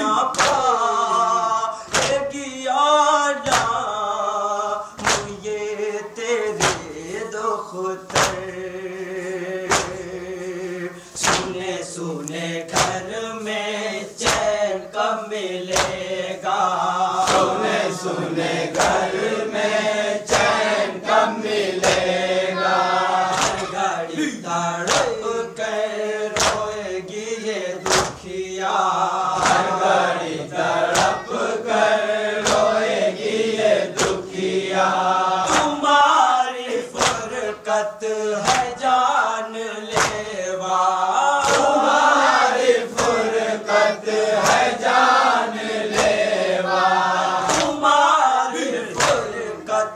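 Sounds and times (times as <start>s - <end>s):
men chanting a lament: 0.0s - 49.9s
chest-beating slaps: 0.2s - 0.7s, 1.8s - 2.4s, 3.4s - 4.0s, 5.0s - 5.6s, 6.4s - 7.0s, 8.1s - 8.6s, 9.6s - 10.2s, 11.2s - 11.7s, 12.3s - 13.2s, 14.2s - 14.7s, 15.7s - 16.2s, 17.2s - 17.7s, 18.7s - 19.3s, 20.3s - 20.8s, 21.8s - 22.2s, 23.3s - 25.3s, 26.4s - 26.8s, 27.8s - 28.4s, 29.4s - 29.8s, 30.8s - 31.4s, 32.4s - 32.8s, 33.9s - 34.4s, 35.4s - 35.9s, 37.0s - 37.4s, 38.4s - 38.8s, 39.9s - 40.3s, 41.4s - 41.9s, 42.9s - 43.4s, 44.4s - 44.9s, 45.9s - 46.4s, 47.4s - 47.9s, 48.9s - 49.4s.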